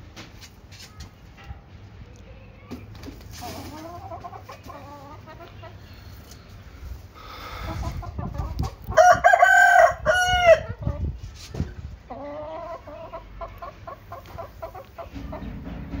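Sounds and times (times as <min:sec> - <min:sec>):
hens clucking: 0:03.0 - 0:16.0
rooster crowing: 0:09.0 - 0:10.7.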